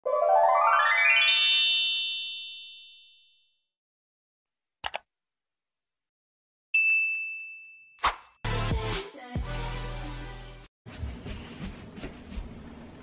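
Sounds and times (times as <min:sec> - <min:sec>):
notification bell ding: 0:06.8 - 0:08.0.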